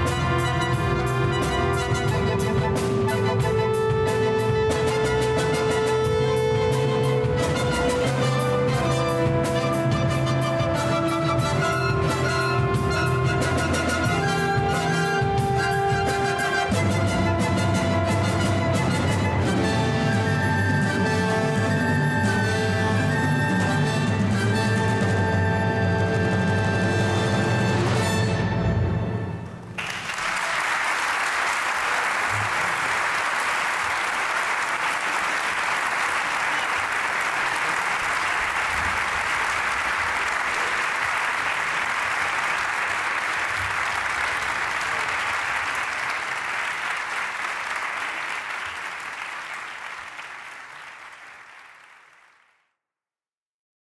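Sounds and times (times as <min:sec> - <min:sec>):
audience applauding: 0:29.6 - 0:52.6.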